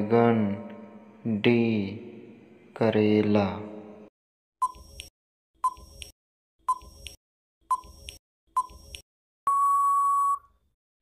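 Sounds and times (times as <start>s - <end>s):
long steady beep: 9.5s - 10.5s.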